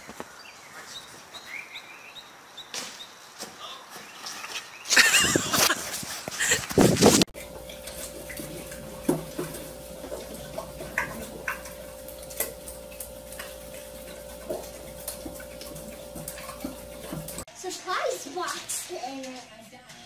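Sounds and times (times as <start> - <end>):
steady electrical hum: 6.4 - 17.5.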